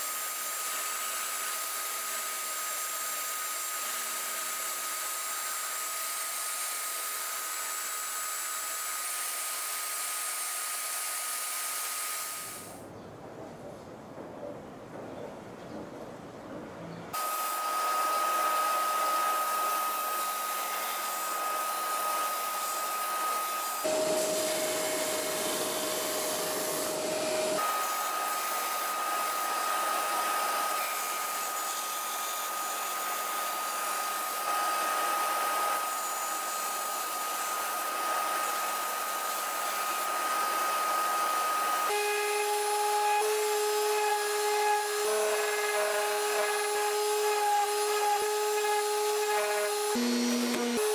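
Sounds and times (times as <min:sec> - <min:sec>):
wood being sanded: 0:00.0 - 0:12.7, 0:17.2 - 0:50.9
electric sander whining: 0:17.2 - 0:50.9
orbital sander low whine: 0:17.2 - 0:50.9.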